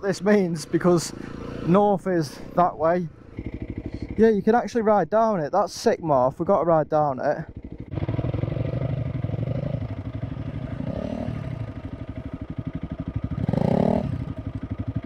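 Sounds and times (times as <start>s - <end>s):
motorcycle engine running: 0.0s - 4.7s, 6.4s - 15.0s.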